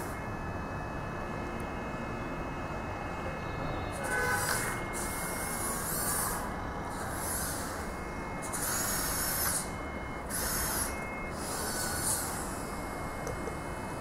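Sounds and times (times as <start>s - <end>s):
small electric motor whining: 3.4s - 14.0s.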